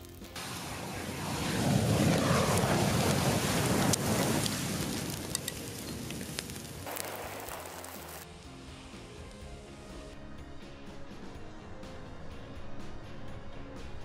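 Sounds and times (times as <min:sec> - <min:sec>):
sparklers hissing: 0:00.0 - 0:08.3
sharp crackles: 0:00.0 - 0:08.4.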